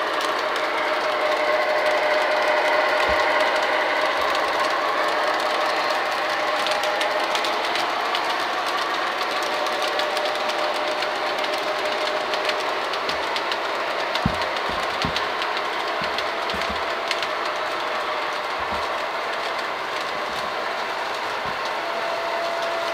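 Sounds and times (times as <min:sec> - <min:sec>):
metal wheels clicking on track: 0:00.0 - 0:22.9
model train motor whir: 0:00.0 - 0:22.9
low knocks: 0:14.2 - 0:15.3, 0:16.0 - 0:16.9.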